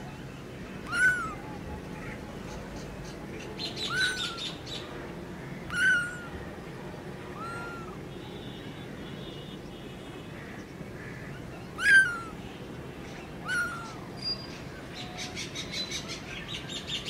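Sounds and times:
birds chirping: 0.1 - 6.5, 9.4 - 17.0
kitten meowing: 0.9 - 1.4, 5.7 - 6.3, 11.8 - 12.3.

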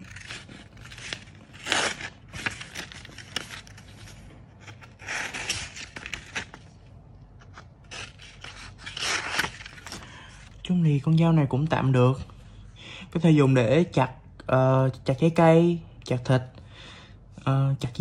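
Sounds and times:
knife blade cutting paper: 0.0 - 3.8, 4.6 - 6.6, 7.5 - 10.0.

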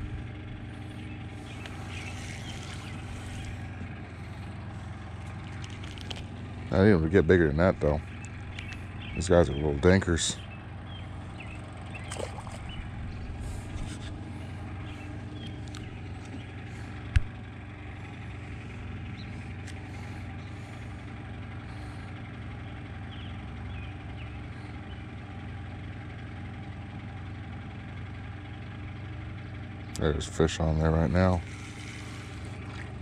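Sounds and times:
motor idling hum: 0.0 - 33.0.

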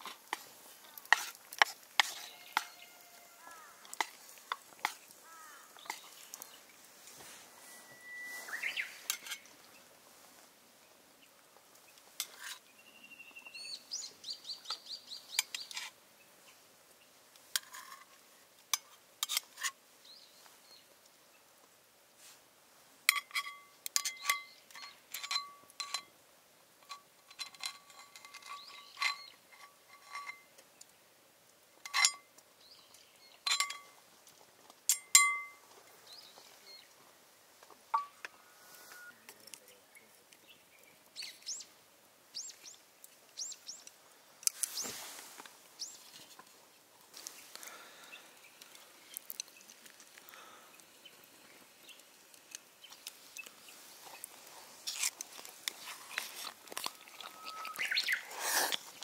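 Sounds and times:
high bird chirps: 7.6 - 9.1, 57.0 - 58.4
sharp metallic clinks: 34.9 - 35.6.

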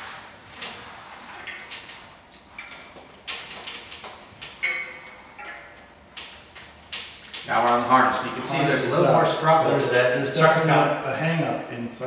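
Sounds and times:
cable clicking against a metal frame: 0.5 - 8.2.

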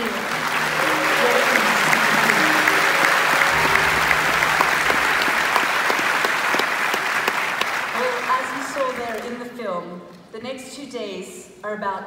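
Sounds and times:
low sustained music: 0.0 - 6.2
audience applauding: 0.0 - 9.3.

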